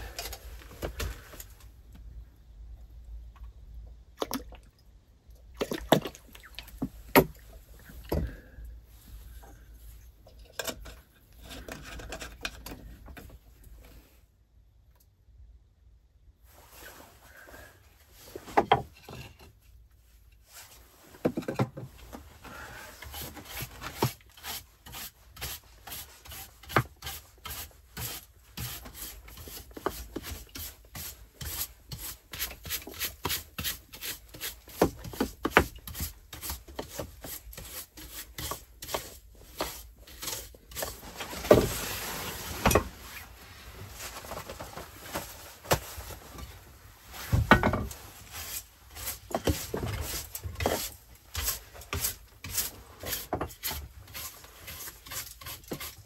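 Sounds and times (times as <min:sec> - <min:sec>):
brush sweeping wooden planks: 0:22.0 - 0:56.0.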